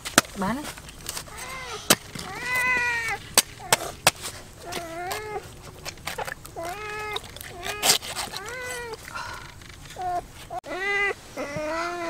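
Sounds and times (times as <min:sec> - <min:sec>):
cat mewing: 0:01.3 - 0:04.0, 0:04.6 - 0:09.0, 0:10.0 - 0:12.0.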